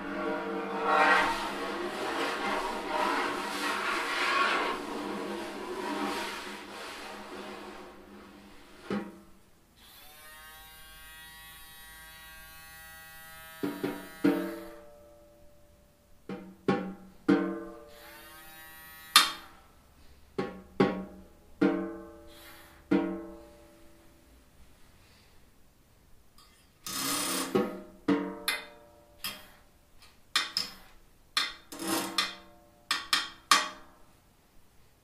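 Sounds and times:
electric buzz on drumhead: 9.9s - 14.7s, 17.9s - 19.5s.

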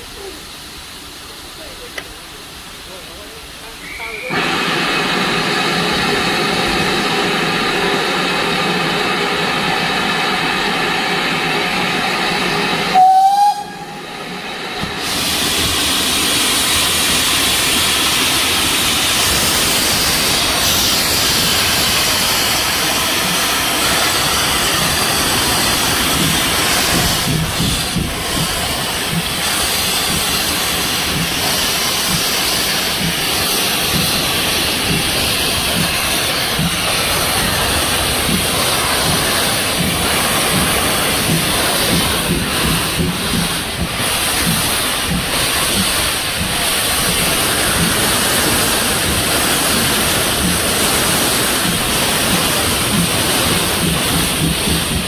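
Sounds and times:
steam locomotive hissing: 0.0s - 55.0s
train whistle blast: 12.9s - 14.0s.

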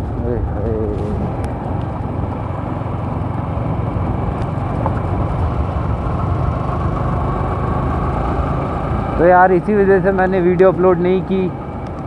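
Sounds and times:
motorcycle engine hum: 0.0s - 12.0s
road noise: 0.0s - 12.0s.

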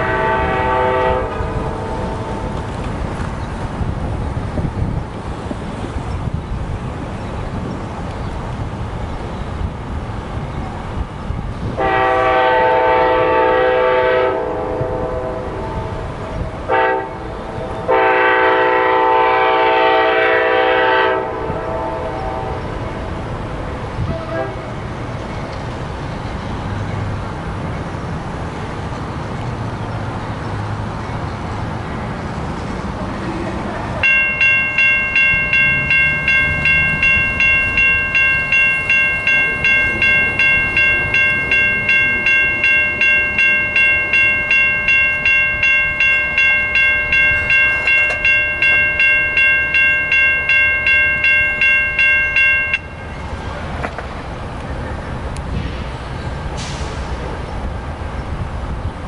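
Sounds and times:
railroad bell ringing: 0.0s - 3.9s, 34.0s - 53.6s
train rumbling: 0.0s - 59.0s.

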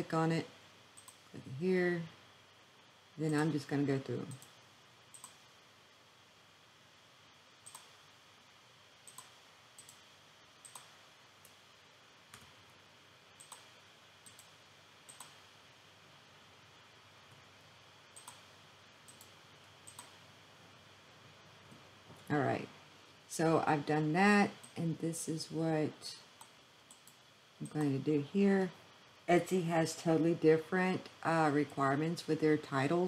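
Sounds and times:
faint steady hiss: 0.0s - 33.0s
computer mouse clicking: 0.9s - 1.3s, 4.3s - 5.5s, 7.6s - 8.0s, 9.0s - 11.6s, 12.3s - 12.6s, 13.4s - 15.5s, 18.1s - 20.3s, 26.4s - 28.0s.

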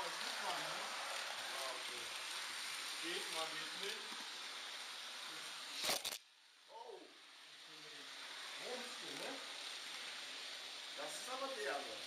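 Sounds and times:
loud crackle: 0.0s - 6.2s
steady hiss: 0.0s - 12.0s.

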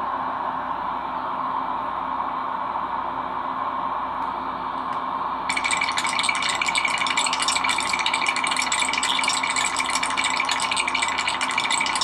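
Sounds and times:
cartoon teeth chattering: 5.5s - 12.0s.

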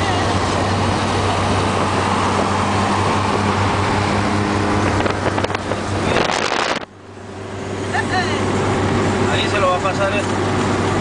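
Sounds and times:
car road noise: 0.0s - 11.0s
low engine drone: 0.0s - 11.0s
wind buffeting microphone: 0.3s - 6.9s.

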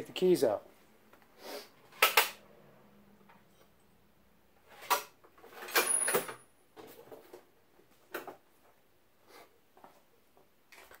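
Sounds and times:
metal tools clattering on workbench: 4.7s - 7.2s.

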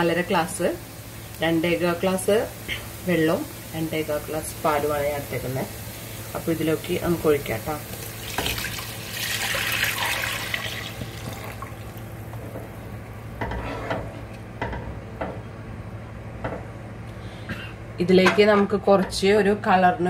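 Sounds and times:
liquid poured into hot pan: 7.9s - 12.1s.

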